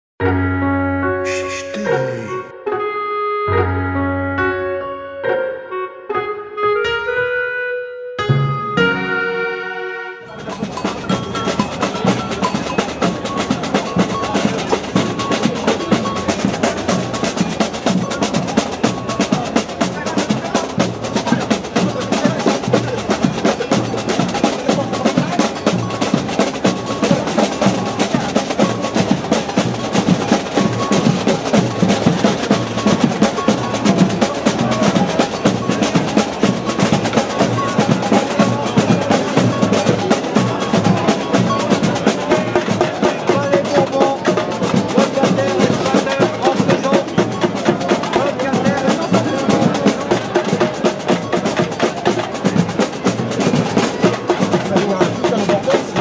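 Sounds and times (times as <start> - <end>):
snare drums: 10.3 - 56.0.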